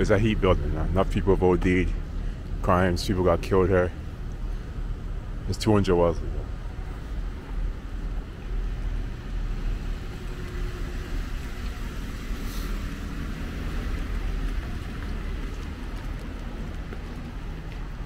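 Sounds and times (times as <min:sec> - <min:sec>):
city street traffic rumble: 0:00.0 - 0:18.0
brief hiss: 0:12.4 - 0:12.9.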